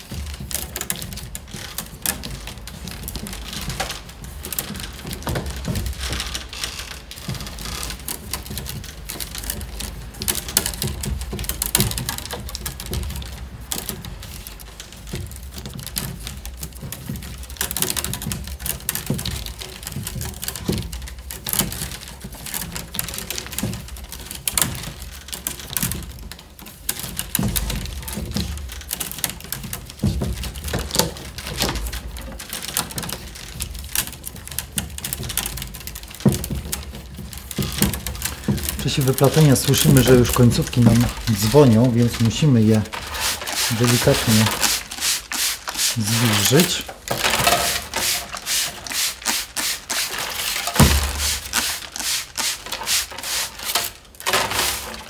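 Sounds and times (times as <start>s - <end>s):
wicker rods being woven: 0.0s - 55.0s.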